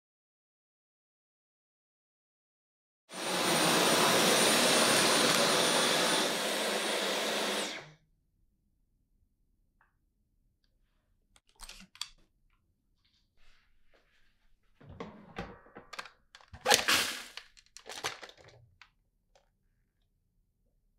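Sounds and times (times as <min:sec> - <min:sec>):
vacuum cleaner running: 0:03.1 - 0:08.0, 0:16.6 - 0:17.4.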